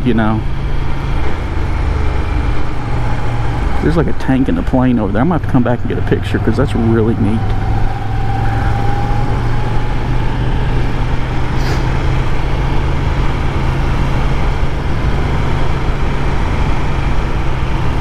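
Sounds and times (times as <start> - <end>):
motorcycle engine running: 0.0 - 18.0
wind and road noise: 0.0 - 18.0.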